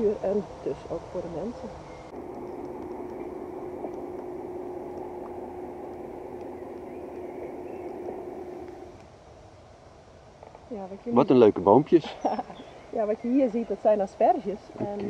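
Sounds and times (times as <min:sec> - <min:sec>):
broad rushing noise: 0:02.1 - 0:09.0
engine-like hum: 0:02.1 - 0:09.0.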